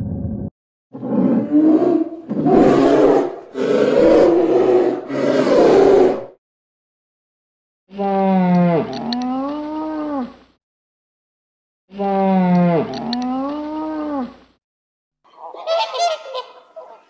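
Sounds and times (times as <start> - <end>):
polar bear growling: 1.0 - 6.4.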